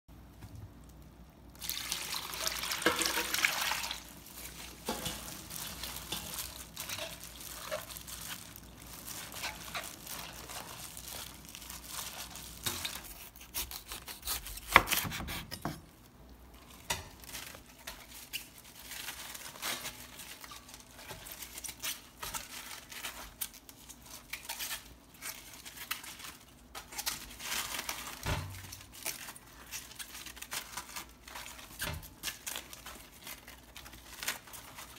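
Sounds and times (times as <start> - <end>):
liquid splashing into bowl: 1.6 - 4.1.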